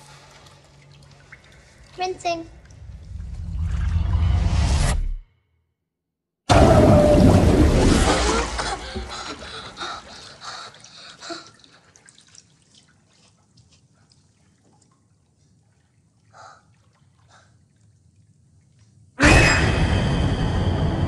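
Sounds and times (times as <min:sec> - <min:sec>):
water dripping in bathtub: 0:00.0 - 0:03.3, 0:08.6 - 0:19.2.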